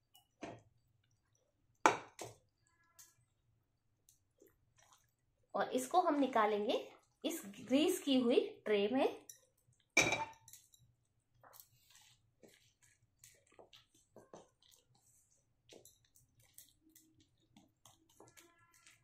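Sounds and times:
spatula squelching sticky mass: 4.1s - 5.2s, 11.4s - 19.0s.

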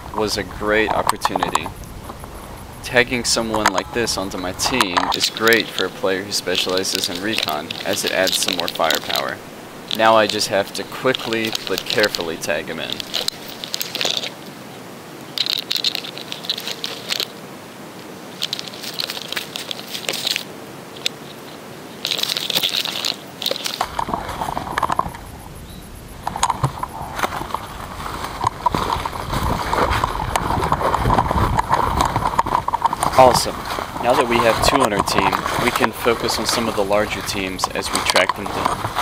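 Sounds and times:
rustling and scraping of brush: 0.0s - 17.4s, 18.0s - 39.0s
footsteps crunching through dry leaves: 3.2s - 14.4s, 26.6s - 39.0s.

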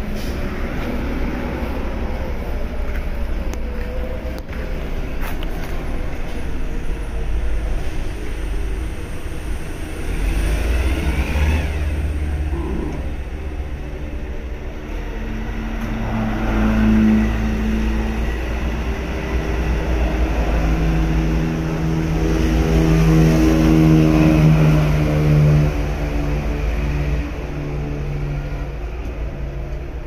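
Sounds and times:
forklift engine rumbling: 0.0s - 30.0s.

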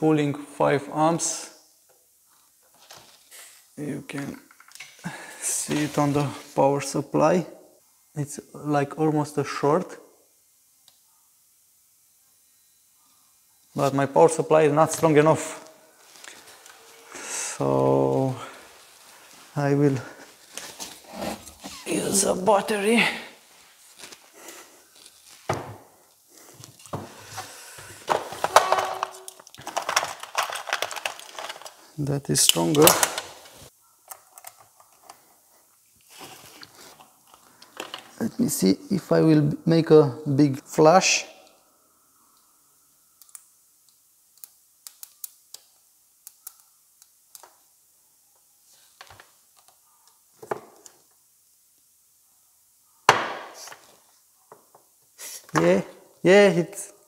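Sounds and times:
clicks and rattles of parts: 28.1s - 31.8s, 32.5s - 35.2s, 37.3s - 38.2s
wires clicking on plastic contacts: 43.2s - 47.6s
sharp thump on workbench: 53.1s - 53.6s.

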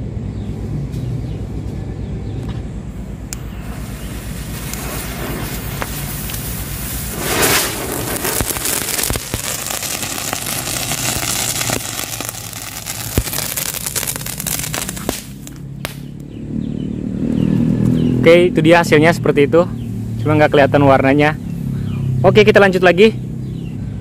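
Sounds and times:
fireworks hissing: 3.2s - 16.1s
sharp pops: 3.3s - 16.4s
loud rush of spray: 3.4s - 15.5s.

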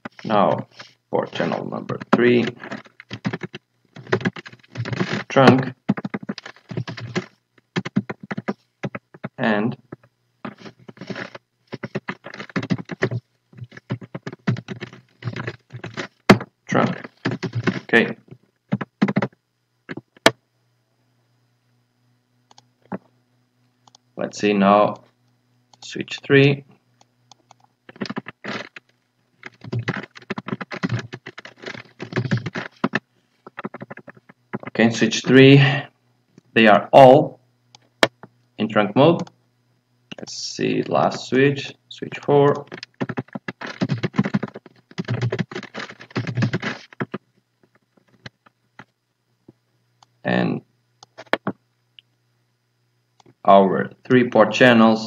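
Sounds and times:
typing on computer keyboard: 1.9s - 5.2s, 5.9s - 9.3s, 10.5s - 17.9s, 18.7s - 20.0s, 27.4s - 28.8s, 29.4s - 34.8s, 42.5s - 47.2s.

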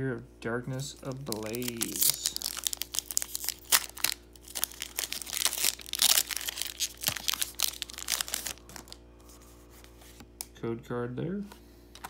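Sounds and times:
foil wrapper crinkling and tearing: 0.9s - 9.0s.

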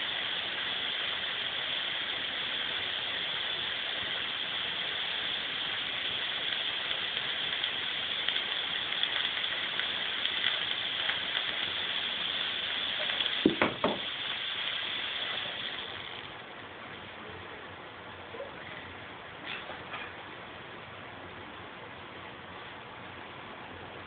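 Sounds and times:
fog machine hissing: 0.0s - 16.7s
sharp knocks: 13.4s - 14.0s.

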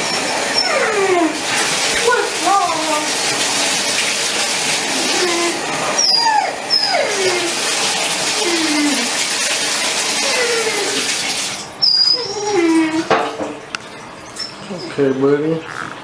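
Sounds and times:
puppy whining: 0.0s - 2.9s, 4.9s - 9.2s, 10.1s - 11.2s, 11.8s - 13.2s, 14.2s - 16.0s
bath water running: 0.0s - 16.0s.

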